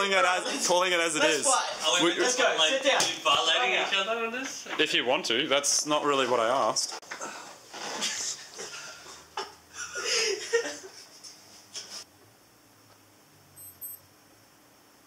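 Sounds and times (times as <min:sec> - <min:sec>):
men giggling and laughing: 0:07.8 - 0:12.0.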